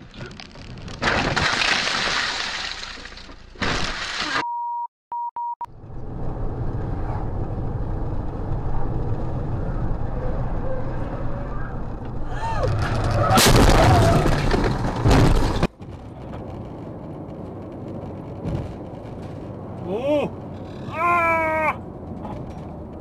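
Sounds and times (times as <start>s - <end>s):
car crashing with crunch: 0.0s - 4.4s, 12.7s - 16.8s
steady high bleep: 4.4s - 5.7s
road and engine rumble inside car: 5.7s - 12.7s, 15.7s - 23.0s.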